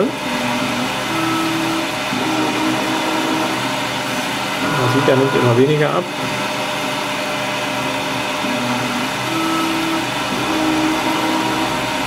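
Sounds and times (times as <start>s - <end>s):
metal lathe hum: 0.0s - 12.0s
faint machine whine: 4.5s - 12.0s.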